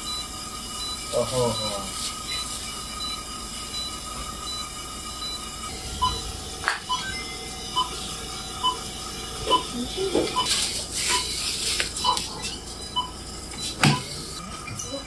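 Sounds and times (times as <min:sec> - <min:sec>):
patient monitor beeping: 0:00.0 - 0:15.0.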